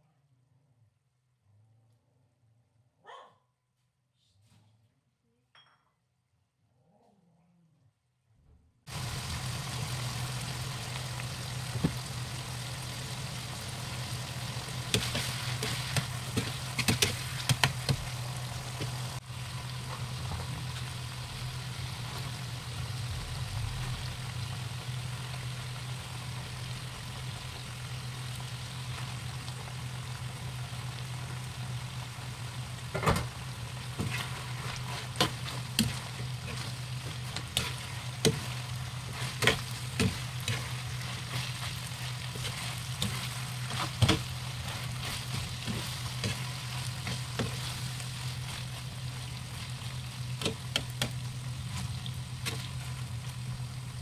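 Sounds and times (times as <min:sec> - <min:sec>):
low hum: 0:08.9 - 0:54.0
meat and vegetables sizzling: 0:08.9 - 0:54.0
spatula scraping a pan: 0:14.7 - 0:19.2, 0:33.9 - 0:50.9.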